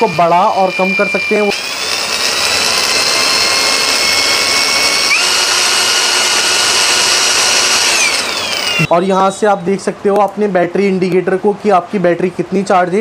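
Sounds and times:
angle grinder whining: 0:00.0 - 0:09.0.

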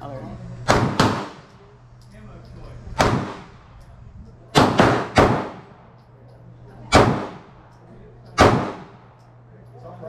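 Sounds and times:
pistol shots: 0:00.7 - 0:01.5, 0:03.0 - 0:03.6, 0:04.5 - 0:05.8, 0:06.9 - 0:07.6, 0:08.2 - 0:09.2.

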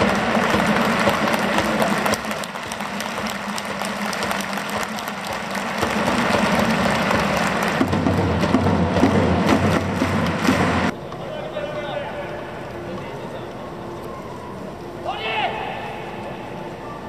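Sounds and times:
stadium crowd applauding: 0:00.0 - 0:10.9.

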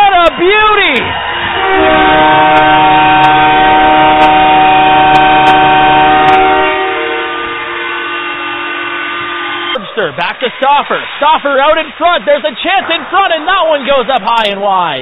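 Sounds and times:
goal horn multi-tone chord: 0:01.6 - 0:09.8.

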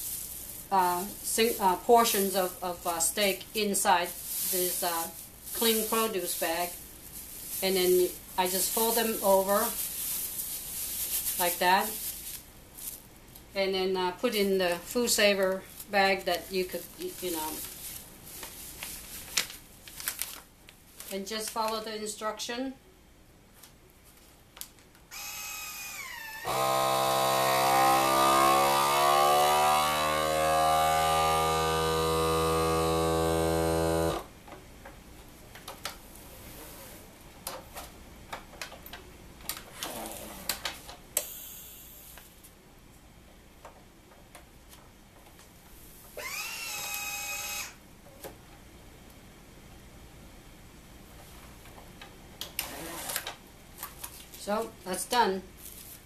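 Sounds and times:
vacuum pump motor whining: 0:25.1 - 0:34.2, 0:46.2 - 0:47.8.

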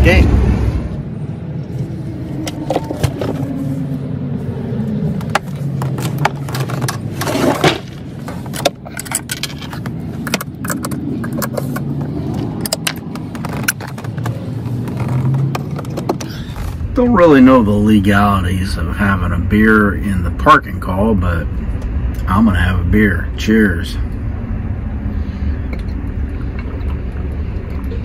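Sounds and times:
rattling scrape: 0:05.5 - 0:11.9.

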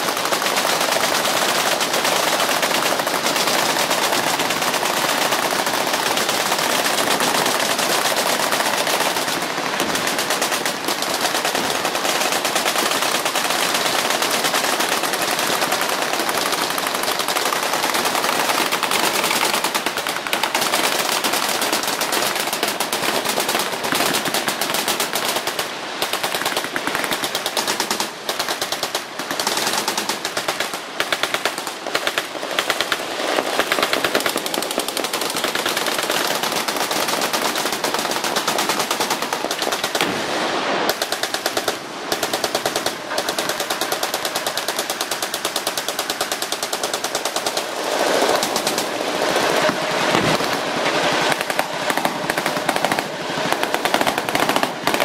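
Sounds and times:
machine-gun fire: 0:00.0 - 0:55.0.

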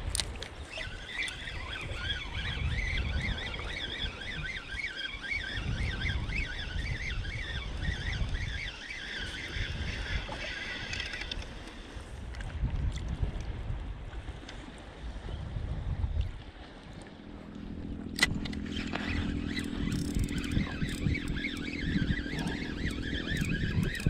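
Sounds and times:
wind rumble on microphone: 0:00.0 - 0:24.0
fishing reel whirring: 0:00.5 - 0:12.0, 0:17.8 - 0:24.0.

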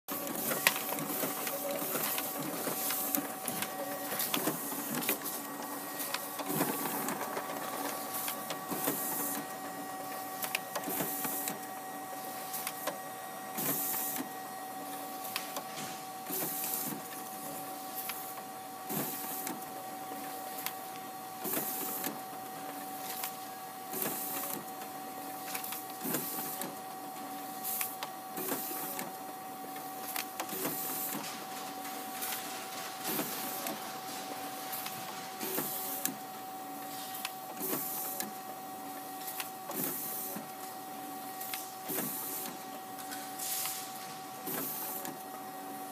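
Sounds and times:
paper sheet swishing through: 0:30.7 - 0:36.0.

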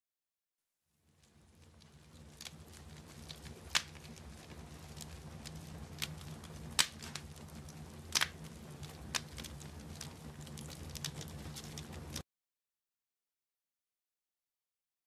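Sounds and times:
low steady hum: 0:00.9 - 0:12.2
wood fire crackling: 0:00.9 - 0:12.2
logs popping: 0:01.8 - 0:12.2.

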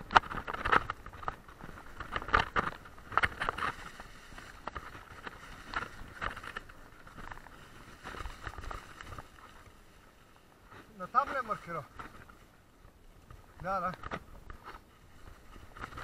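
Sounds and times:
bike rattling over bumps: 0:00.0 - 0:09.7, 0:13.2 - 0:16.0
tyre and wind noise: 0:00.0 - 0:16.0.

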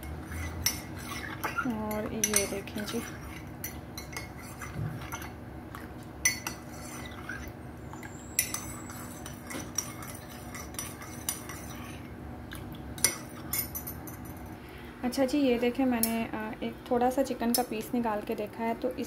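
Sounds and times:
spoon clinking in a ceramic mug: 0:02.2 - 0:04.4, 0:06.2 - 0:07.0, 0:08.3 - 0:11.8.

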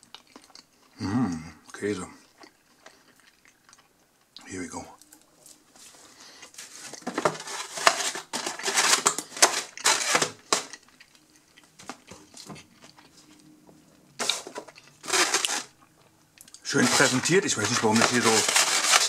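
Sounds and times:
foam boxes rubbing and pressing: 0:16.8 - 0:19.0.

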